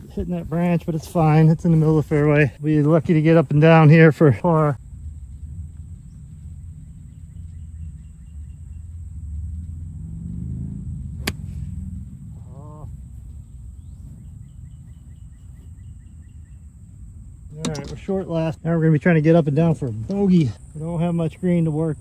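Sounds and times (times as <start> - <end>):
low wind rumble on microphone: 4.7 - 18.7
golf club striking ball: 11.0 - 12.2, 17.5 - 18.1.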